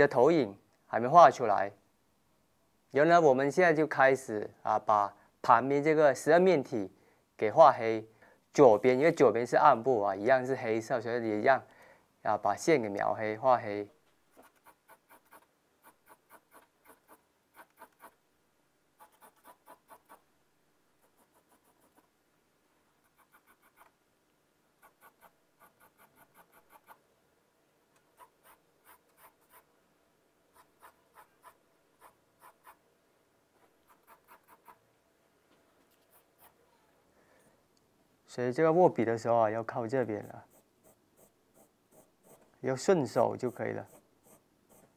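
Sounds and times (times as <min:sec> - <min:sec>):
pencil scratching on paper: 0:14.3 - 0:18.2, 0:19.0 - 0:20.2, 0:21.0 - 0:22.1, 0:23.0 - 0:23.9, 0:24.8 - 0:27.0, 0:28.2 - 0:29.7, 0:30.5 - 0:32.8, 0:33.8 - 0:34.8, 0:40.2 - 0:42.5, 0:43.4 - 0:44.9.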